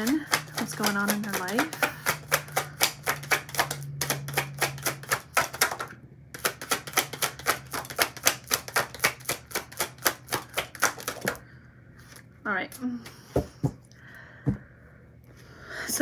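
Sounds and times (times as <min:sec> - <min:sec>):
cards being shuffled by hand: 0:00.0 - 0:11.4.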